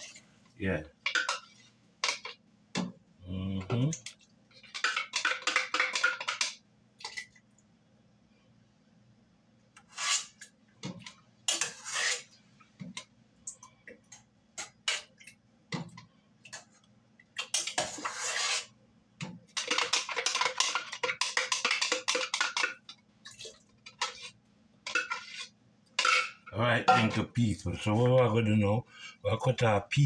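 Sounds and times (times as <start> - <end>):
metal utensil scraping a pot: 9.8 - 10.4, 11.5 - 12.4, 17.6 - 18.8, 19.6 - 22.7, 23.9 - 27.2.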